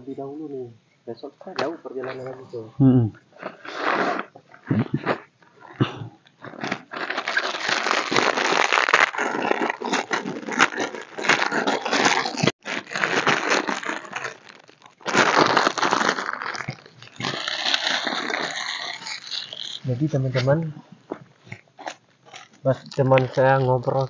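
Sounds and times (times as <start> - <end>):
plastic tarp rustling and crackling: 6.4 - 20.6, 21.4 - 24.0.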